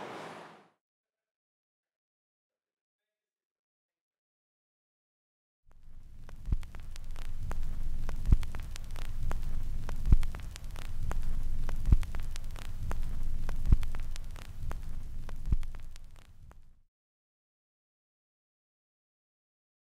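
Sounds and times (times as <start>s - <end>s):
crackling static: 0.0s - 0.6s, 5.7s - 16.8s
low rumbling hum: 5.9s - 16.5s.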